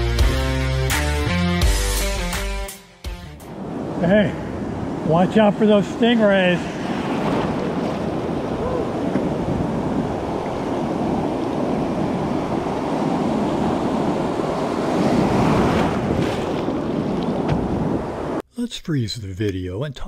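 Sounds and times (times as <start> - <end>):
ocean surf rushing: 3.4 - 18.4
wind buffeting microphone: 3.5 - 18.4.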